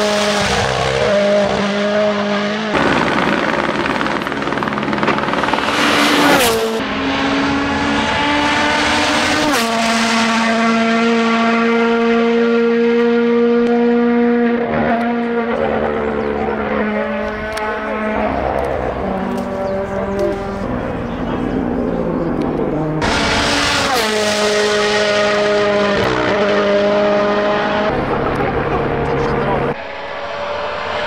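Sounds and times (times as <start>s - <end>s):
rally car engines revving high: 0.0s - 31.0s.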